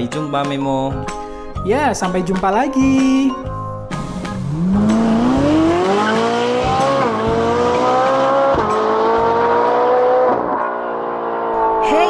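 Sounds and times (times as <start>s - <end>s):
race car engine accelerating: 4.0s - 12.0s.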